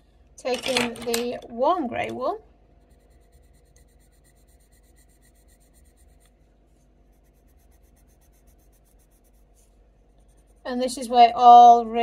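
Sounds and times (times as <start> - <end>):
pencil scratching on paper: 2.8 - 11.1.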